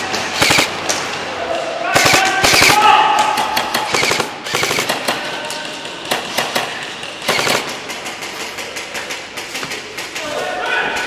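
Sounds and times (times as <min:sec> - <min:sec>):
airsoft gunfire clicks: 0:00.4 - 0:00.8, 0:02.0 - 0:05.2, 0:06.1 - 0:08.0.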